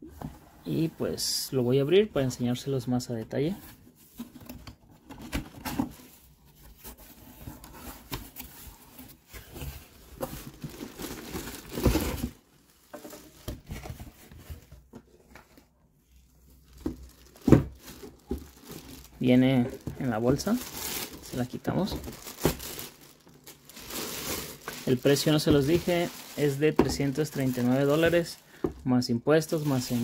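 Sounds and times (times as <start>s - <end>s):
cardboard rustling and scraping: 3.5s - 15.7s, 16.5s - 28.8s, 29.6s - 30.0s
plastic bag crinkling: 10.4s - 13.5s, 16.6s - 28.7s, 29.5s - 30.0s.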